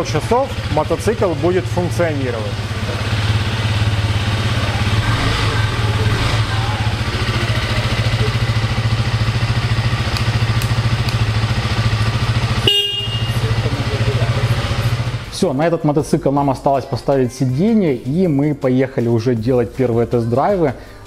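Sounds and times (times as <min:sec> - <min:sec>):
motorcycle engine idling: 0:00.0 - 0:15.5.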